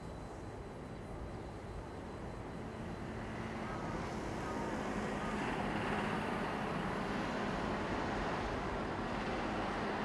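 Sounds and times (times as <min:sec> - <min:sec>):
diesel locomotive rumble: 0:02.1 - 0:10.0.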